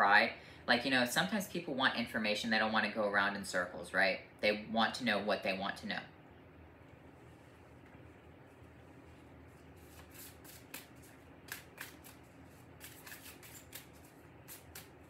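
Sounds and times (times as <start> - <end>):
cards being shuffled by hand: 9.5 - 15.0.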